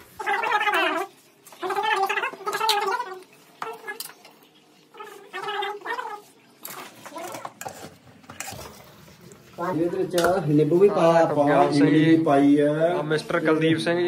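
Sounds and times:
metal spoon scraping steel bowl: 6.6 - 8.9.

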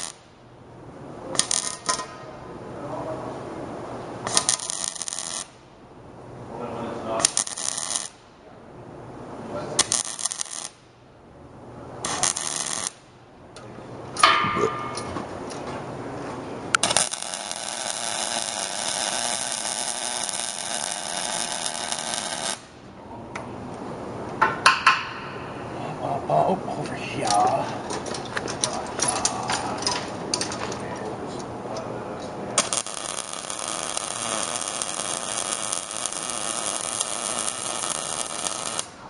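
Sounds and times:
welding arc crackling and hissing: 0.0 - 0.3, 1.2 - 2.1, 4.2 - 5.7, 6.6 - 8.3, 9.5 - 10.9, 12.0 - 13.2, 16.7 - 22.9, 32.5 - 39.0.

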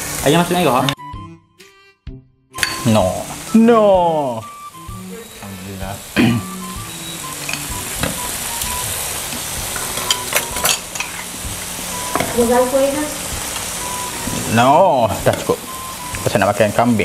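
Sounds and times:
meat sizzling on grill pan: 0.0 - 0.9, 2.7 - 17.0
ladle clinking bowls: 2.6 - 2.9, 7.4 - 8.2, 9.7 - 11.3.

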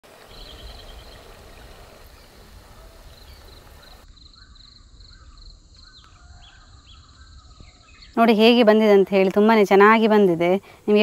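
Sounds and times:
faint chirping: 0.1 - 8.7.

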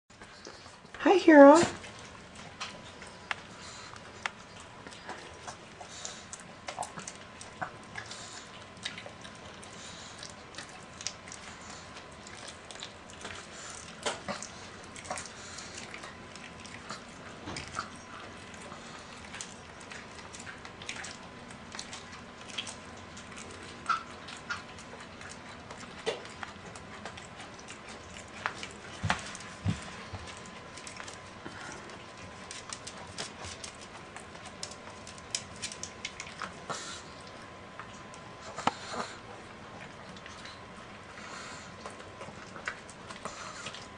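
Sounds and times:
dog chewing meat: 0.1 - 43.9.

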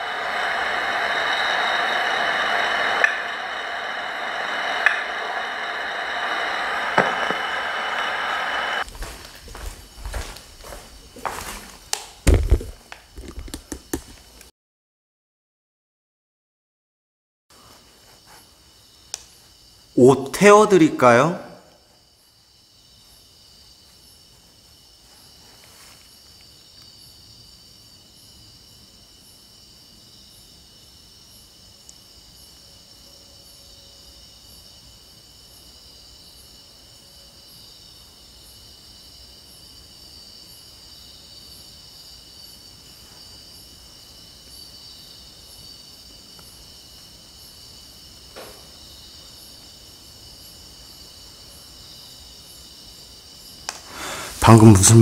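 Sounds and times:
night insects chirping: 0.0 - 14.5, 17.5 - 55.0.

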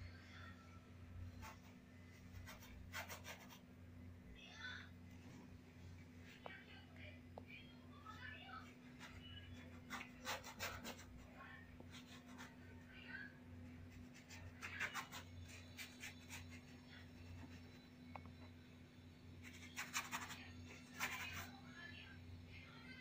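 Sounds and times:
faint steady hum: 0.0 - 23.0
paintbrush scratching across canvas: 1.3 - 3.6, 9.0 - 12.7, 13.8 - 17.9, 19.4 - 21.6.

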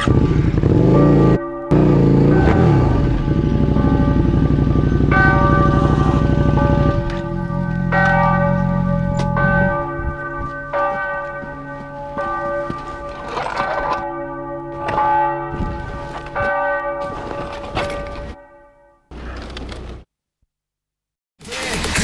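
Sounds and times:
low hum: 0.0 - 10.7
bells ringing: 0.8 - 19.4.

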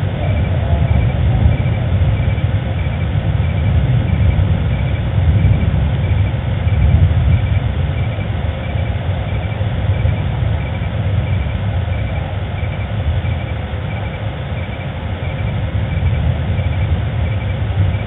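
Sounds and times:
fluttering low rumble: 0.0 - 18.0
faint high chirp: 6.0 - 18.0.

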